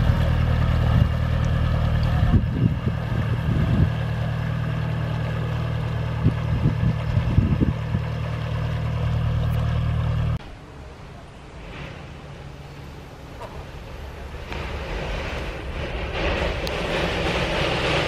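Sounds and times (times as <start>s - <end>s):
wind buffeting microphone: 0.0s - 5.0s, 5.8s - 8.7s
diesel boat engine chugging: 0.0s - 10.4s.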